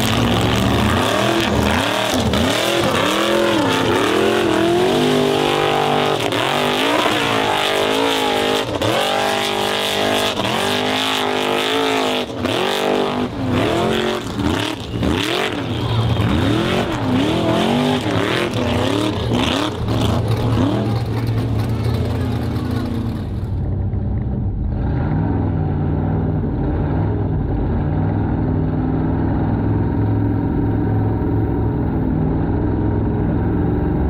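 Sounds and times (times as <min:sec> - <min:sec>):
car engine revving hard: 0:00.0 - 0:22.0.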